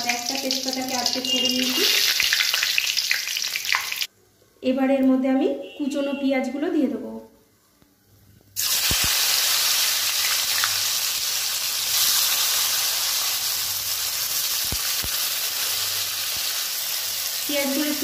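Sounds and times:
onions sizzling in hot oil: 0.0 - 4.1, 8.6 - 18.0.

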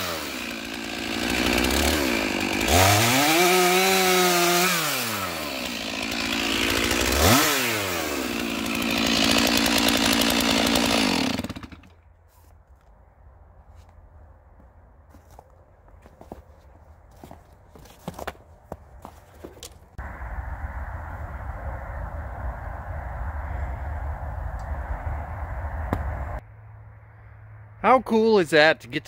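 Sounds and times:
chainsaw cutting log: 0.0 - 12.0.

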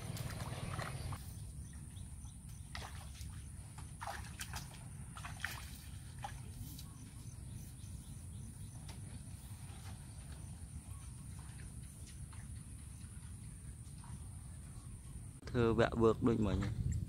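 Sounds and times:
feet wading through muddy water: 0.0 - 7.5.

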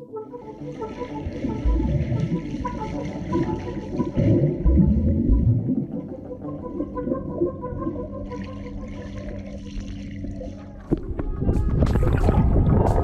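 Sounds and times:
muffled water splashing: 0.1 - 13.0.

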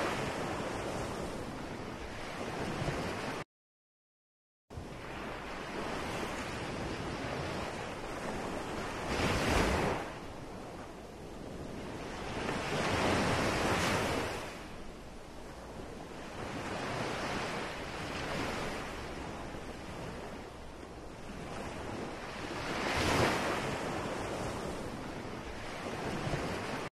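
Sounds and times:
ocean surf washing in: 11.6 - 26.9.

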